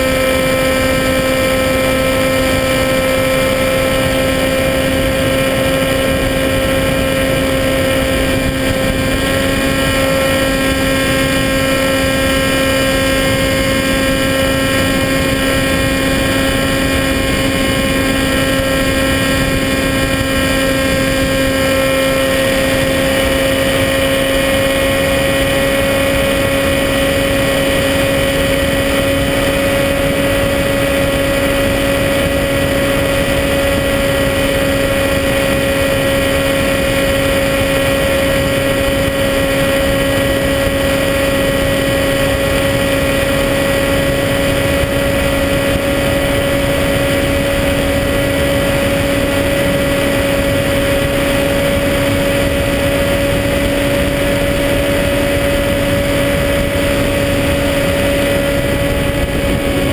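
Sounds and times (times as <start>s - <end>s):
model plane propeller droning: 0.0s - 59.9s
wind rushing: 45.0s - 59.9s.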